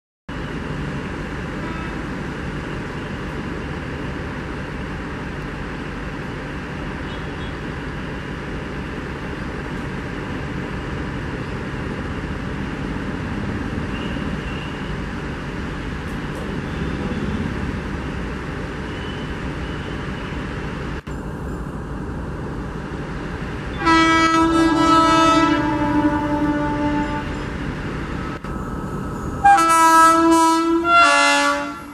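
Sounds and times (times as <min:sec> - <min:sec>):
train rumbling: 0:00.3 - 0:31.9
loud train horn: 0:01.6 - 0:02.1, 0:23.7 - 0:27.5, 0:29.4 - 0:31.9.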